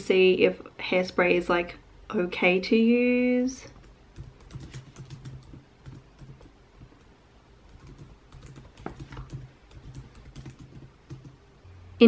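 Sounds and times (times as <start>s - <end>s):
typing on computer keyboard: 3.7s - 7.1s, 7.7s - 11.4s.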